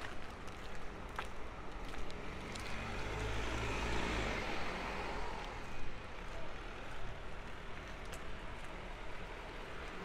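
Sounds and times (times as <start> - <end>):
outdoor bustle: 0.0 - 10.0.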